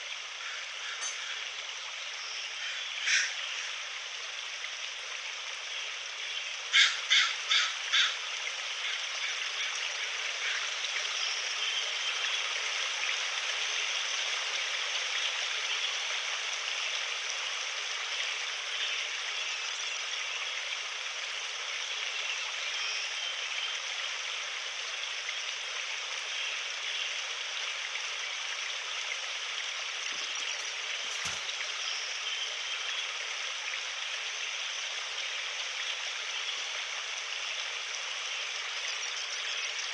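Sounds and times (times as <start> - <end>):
river rushing: 29.8 - 32.7, 35.3 - 37.5.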